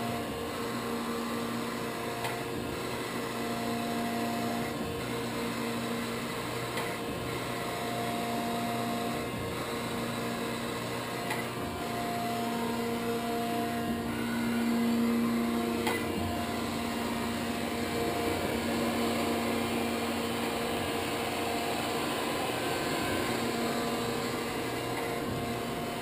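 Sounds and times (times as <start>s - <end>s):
surface grinder humming: 10.7s - 26.0s.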